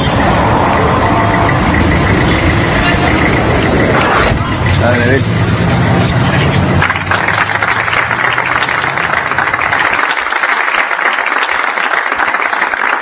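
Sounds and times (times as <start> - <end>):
low engine hum: 0.0 - 10.0
audience applauding: 6.8 - 13.0.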